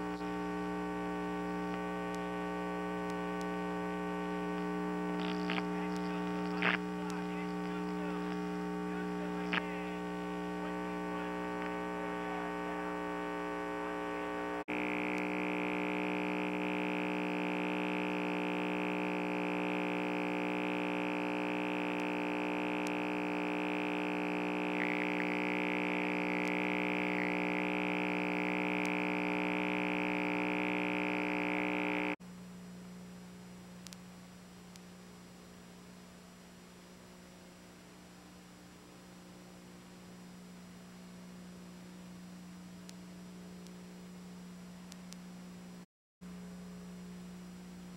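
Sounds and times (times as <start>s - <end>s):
high whine: 0.0s - 32.2s
electrical hum and buzz: 0.0s - 47.9s.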